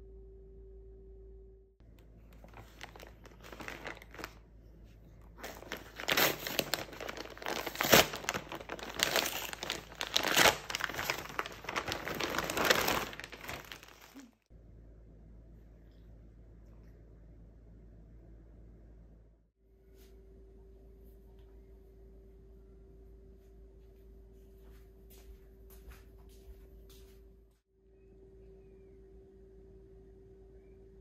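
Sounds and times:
packaging being crumpled: 0:02.2 - 0:04.4, 0:05.3 - 0:14.4.

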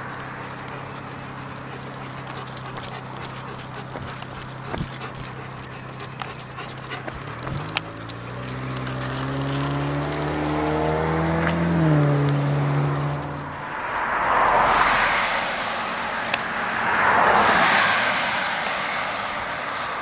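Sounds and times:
car passing: 0:00.0 - 0:20.0.

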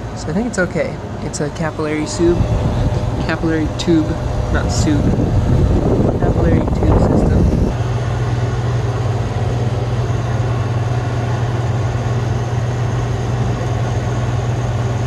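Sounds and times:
compressor humming: 0:00.0 - 0:15.0
rushing noise: 0:01.8 - 0:08.1.

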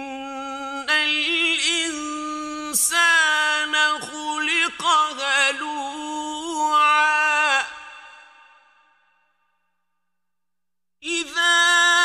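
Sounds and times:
man chanting recitation: 0:00.3 - 0:07.9.

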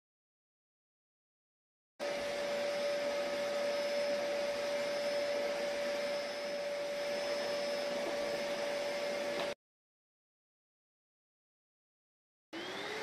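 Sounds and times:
vacuum cleaner running on carpet: 0:02.0 - 0:09.6, 0:12.6 - 0:13.0.

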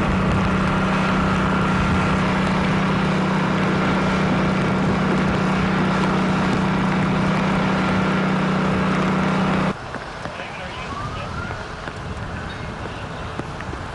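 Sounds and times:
engine drone: 0:00.0 - 0:13.9
outdoor noise: 0:00.0 - 0:13.9.

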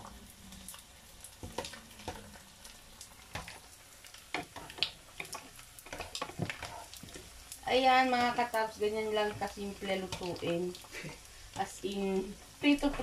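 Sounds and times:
fish sizzling in oil: 0:00.0 - 0:13.0.

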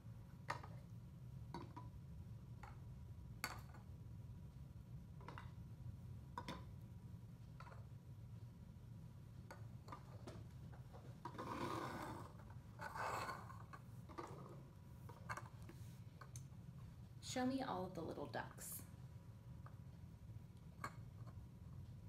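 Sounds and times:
plastic toys scraping on table: 0:11.3 - 0:14.6.

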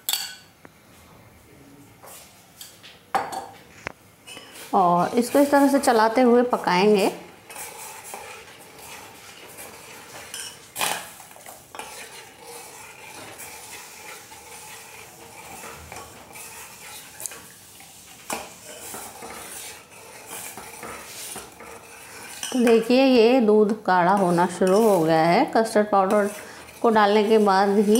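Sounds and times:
spoon clinking on pot: 0:00.0 - 0:00.5
spoon scraping metal pot: 0:04.3 - 0:23.4, 0:24.0 - 0:25.3, 0:25.9 - 0:27.9.

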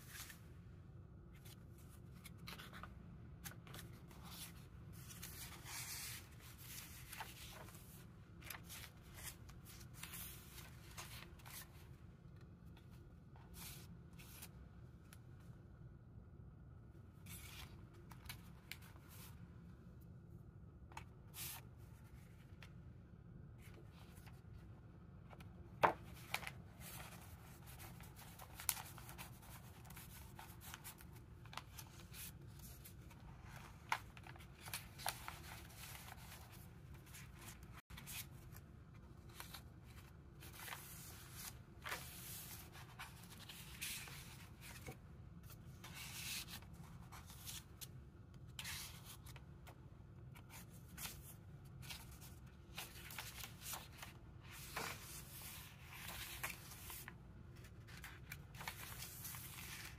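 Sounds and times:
paper rustling and sliding: 0:01.4 - 0:11.8, 0:25.3 - 0:47.9, 0:50.4 - 0:59.9.

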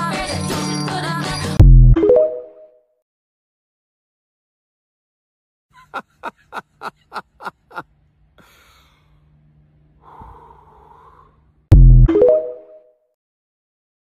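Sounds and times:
person laughing: 0:05.7 - 0:07.9
breathy intake: 0:08.4 - 0:09.2, 0:10.0 - 0:11.5.

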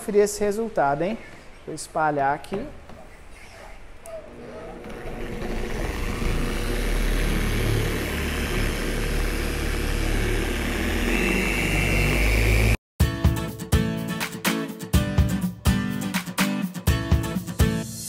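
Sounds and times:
high whine: 0:04.1 - 0:12.8
polisher motor hum: 0:04.3 - 0:12.8.

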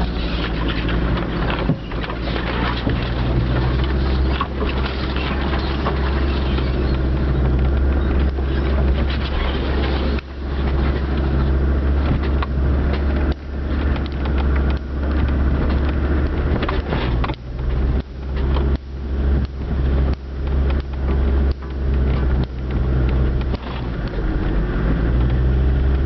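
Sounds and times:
knocks and rattles: 0:00.0 - 0:18.8
diesel engine droning: 0:00.0 - 0:26.0.

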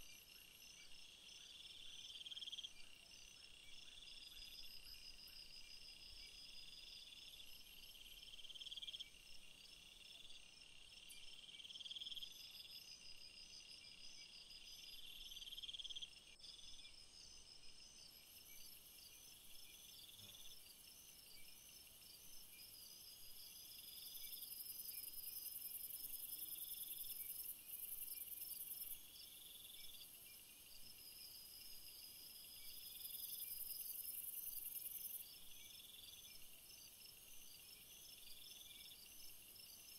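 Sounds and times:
insects trilling: 0:00.0 - 0:39.9
higher insect buzz: 0:19.6 - 0:20.7.

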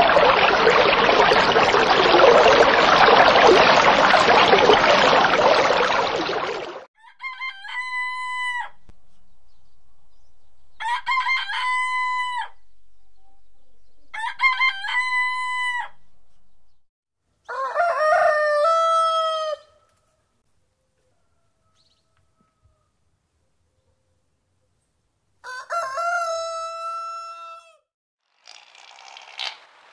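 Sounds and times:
rooster crowing: 0:07.0 - 0:08.9, 0:10.8 - 0:12.6, 0:14.2 - 0:16.0, 0:17.4 - 0:19.8, 0:20.9 - 0:23.0, 0:25.4 - 0:27.9.

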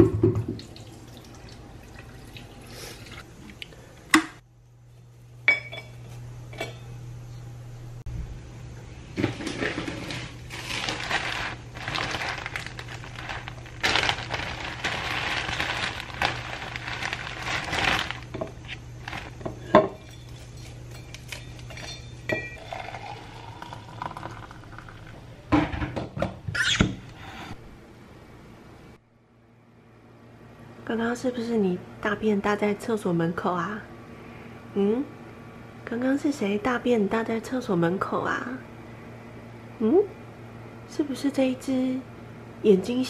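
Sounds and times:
plastic bag rustling: 0:09.2 - 0:21.6.

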